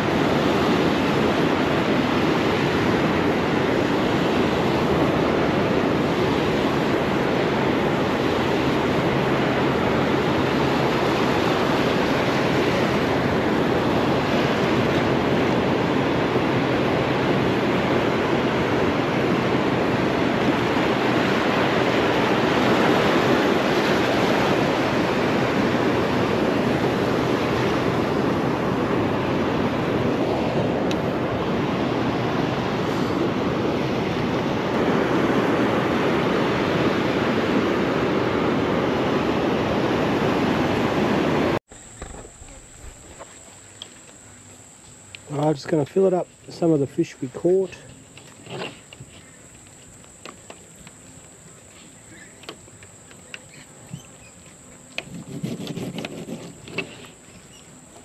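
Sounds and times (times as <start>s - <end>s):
ocean surf breaking: 0.0s - 43.3s.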